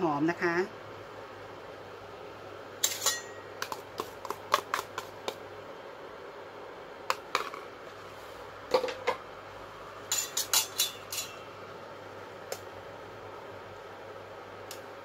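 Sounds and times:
ladle clinking in pot: 2.8 - 3.5, 10.1 - 11.4
metal spoon clinking on pot: 2.8 - 3.5, 10.1 - 11.4.

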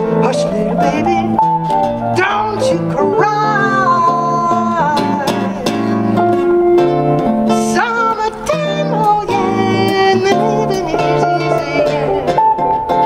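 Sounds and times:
acoustic and electric guitar: 0.0 - 13.0.

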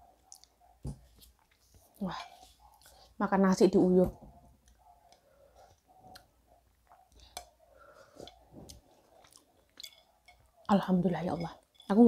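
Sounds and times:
small clicks and mouth noises: 0.2 - 0.6, 6.0 - 7.6, 8.3 - 10.4.

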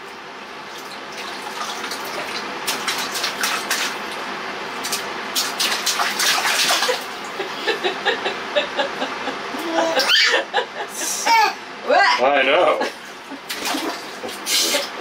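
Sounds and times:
child splashing in water: 1.2 - 4.0, 4.8 - 7.1, 13.5 - 14.9.

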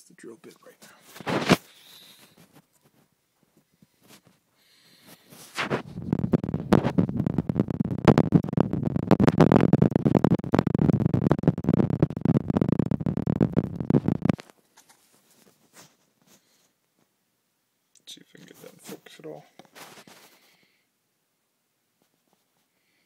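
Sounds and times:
fingers rubbing phone microphone: 0.6 - 3.1, 3.8 - 16.7, 18.4 - 20.6.

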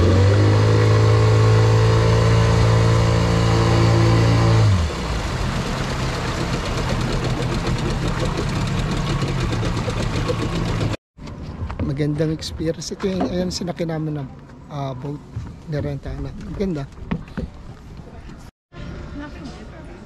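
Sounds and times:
outboard motor humming: 0.0 - 11.0
rush of water: 0.0 - 11.0
wind: 0.0 - 20.0.

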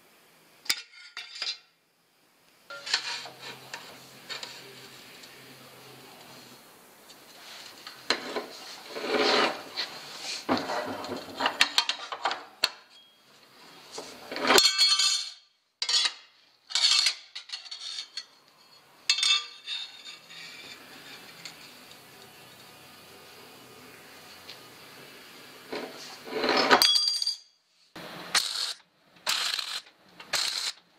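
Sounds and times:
metallic clanks and scrapes: 2.7 - 4.6, 8.1 - 12.2, 15.8 - 20.8, 25.7 - 26.9
lever shear cutting steel: 28.3 - 30.8.

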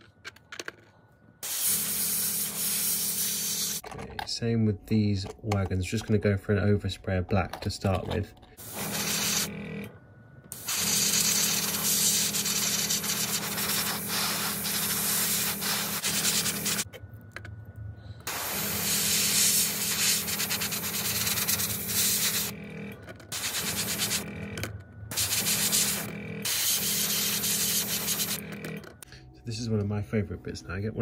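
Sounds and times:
steady hum: 1.0 - 31.0
airbrush spraying hiss: 1.4 - 3.8, 8.6 - 9.5, 10.6 - 16.8, 18.3 - 22.5, 23.4 - 24.2, 25.1 - 28.4.

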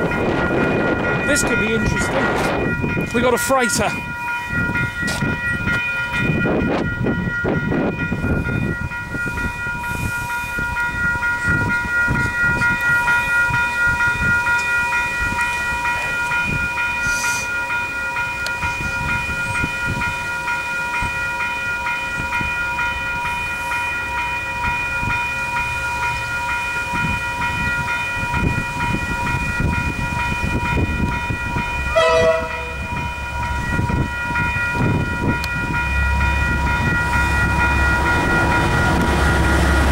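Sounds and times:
diesel locomotive rumbling: 0.0 - 39.9
level crossing warning bells: 0.0 - 39.9
train horn: 31.9 - 32.9.

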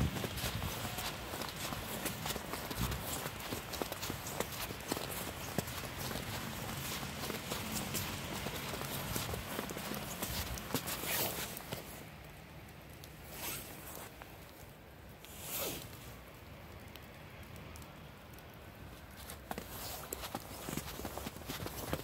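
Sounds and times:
footsteps crunching in snow: 0.0 - 12.0, 13.3 - 14.2, 19.1 - 22.0.

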